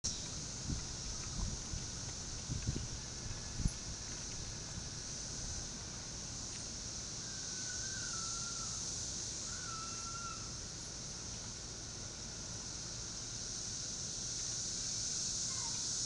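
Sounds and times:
cicada chorus drone: 0.0s - 16.0s
wavering whistled calls: 7.2s - 10.6s.

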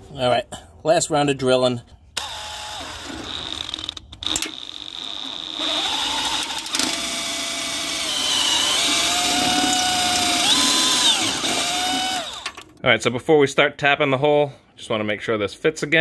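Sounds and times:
cordless drill drilling into metal: 2.2s - 12.6s.

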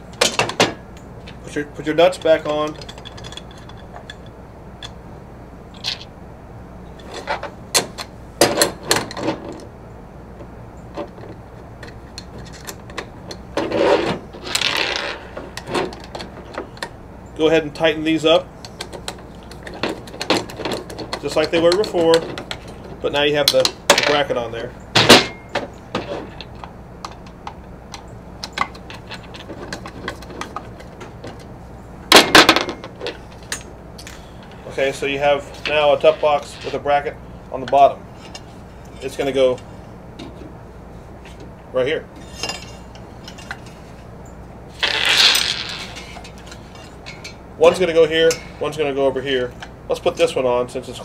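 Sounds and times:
metal nuts clicking and tapping: 2.2s - 5.0s, 18.6s - 22.8s, 26.4s - 31.5s
metal rubbing and scraping: 11.0s - 16.8s, 25.0s - 26.6s, 34.4s - 37.2s, 42.1s - 44.1s, 44.7s - 48.9s.

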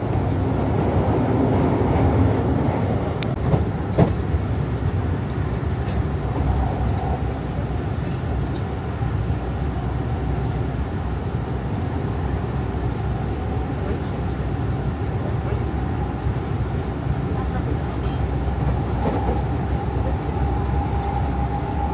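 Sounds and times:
subway train rumble: 0.0s - 21.9s.

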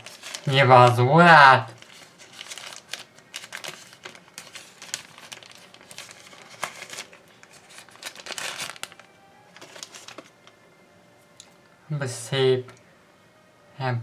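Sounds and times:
paper wrapping crinkling: 0.0s - 10.6s.

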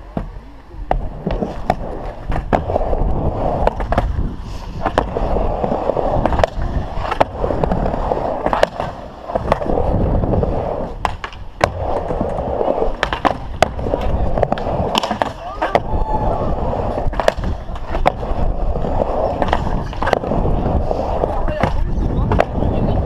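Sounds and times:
skateboard clacks: 0.0s - 23.0s
skateboard wheels rolling: 0.0s - 23.0s.

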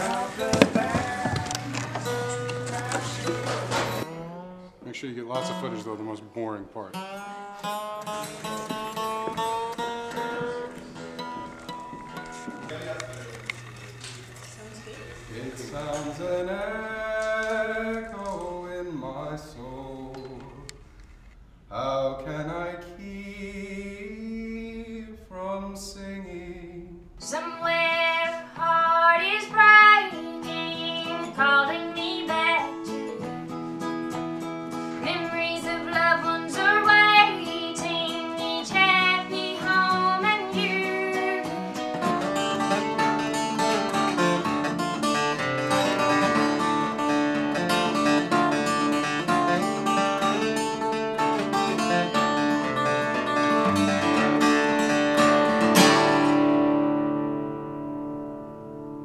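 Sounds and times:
woman singing: 0.0s - 3.9s, 27.2s - 33.3s, 35.0s - 41.8s
acoustic guitar picked and strummed: 0.0s - 59.0s.

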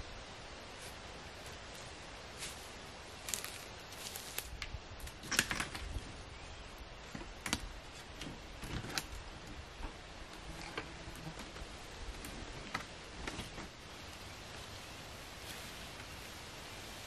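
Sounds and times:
wooden sticks clattering: 3.2s - 6.0s.

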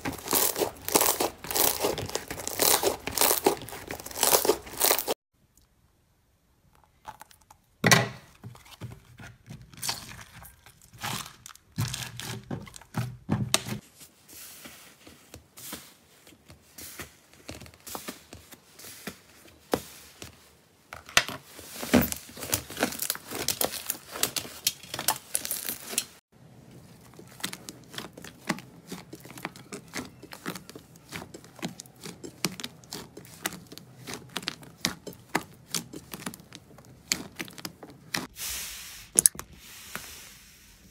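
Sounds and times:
slime clicking and squishing: 0.0s - 5.1s, 22.4s - 26.0s, 26.7s - 38.3s
plastic bag crinkling: 0.0s - 5.2s, 10.2s - 12.9s, 21.9s - 38.3s
scissors cutting plastic bag: 0.0s - 5.2s, 22.0s - 26.2s, 26.8s - 38.3s.

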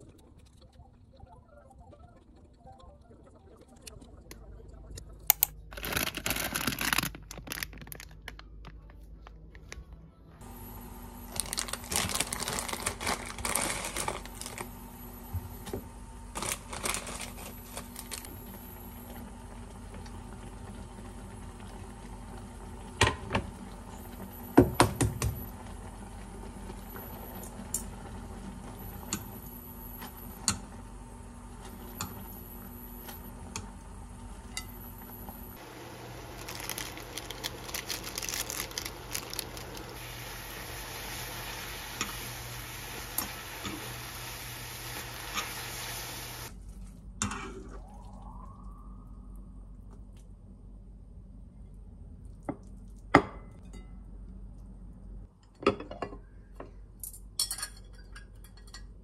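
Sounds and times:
plastic packaging crinkling: 5.7s - 9.8s, 11.3s - 14.8s, 16.3s - 18.3s, 36.0s - 40.1s
steady hum: 8.6s - 52.4s.

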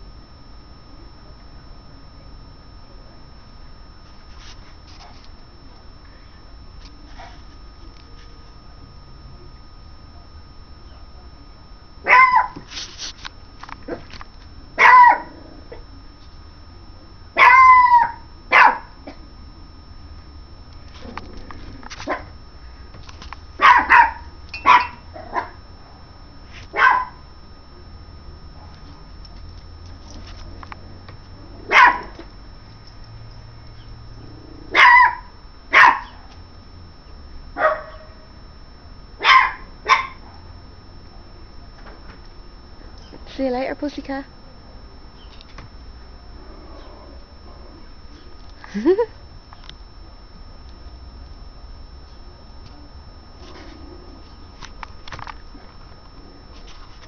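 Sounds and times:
puppy barking high-pitched: 12.0s - 12.6s, 14.8s - 15.3s, 17.4s - 18.9s, 23.6s - 25.6s, 26.7s - 27.2s, 31.7s - 32.1s, 34.7s - 36.2s, 37.6s - 38.1s, 39.2s - 40.2s.

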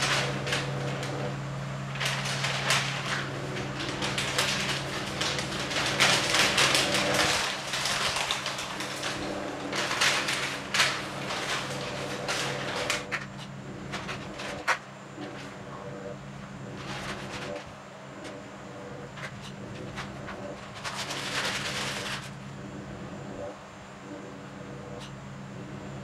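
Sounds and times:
newspaper rustling and crackling: 0.0s - 22.6s
electric fan humming: 0.0s - 26.0s.

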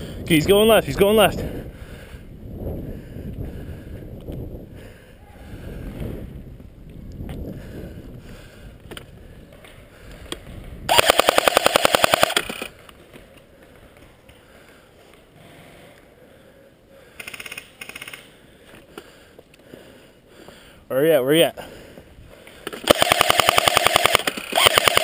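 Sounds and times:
airsoft rifle automatic bursts: 10.9s - 12.8s, 22.8s - 25.0s.

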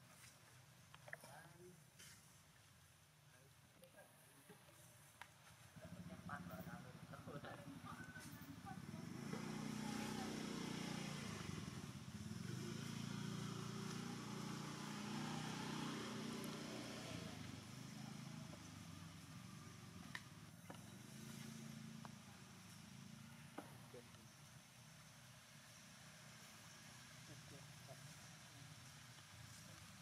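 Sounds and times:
engine running: 7.2s - 24.8s.

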